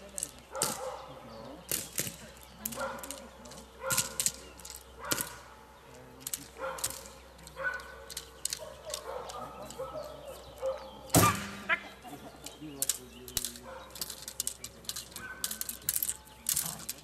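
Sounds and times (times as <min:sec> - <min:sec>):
dog barking: 0:00.5 - 0:01.2, 0:02.8 - 0:03.2, 0:03.8 - 0:04.2, 0:05.0 - 0:05.5, 0:06.6 - 0:11.4, 0:13.6 - 0:14.0
sharp clicks: 0:01.7 - 0:10.2, 0:12.4 - 0:17.0.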